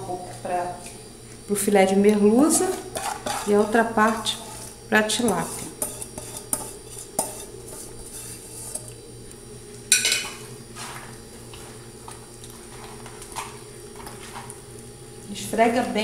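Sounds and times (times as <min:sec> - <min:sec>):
faint steady hum: 0:00.0 - 0:16.0
metal kitchenware clattering: 0:09.9 - 0:10.4
sharp ringing clank: 0:09.9 - 0:10.4.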